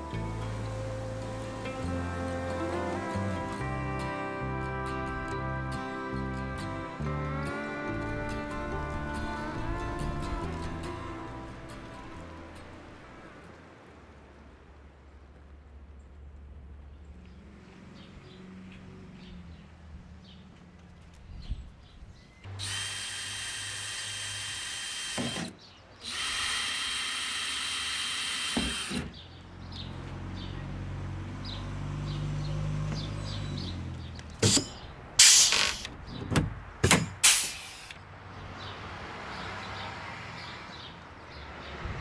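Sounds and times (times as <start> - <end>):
cordless drill running: 22.5 - 29.1.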